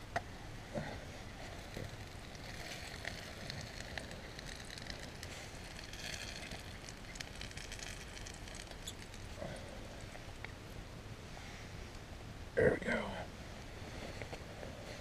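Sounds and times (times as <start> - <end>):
campfire crackling: 0.0 - 15.0
bread frying in skillet: 1.3 - 10.4.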